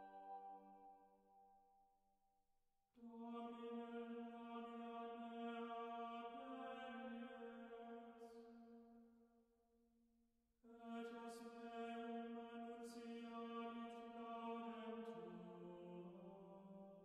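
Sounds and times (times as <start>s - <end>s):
slow music of held notes: 0.0s - 1.6s.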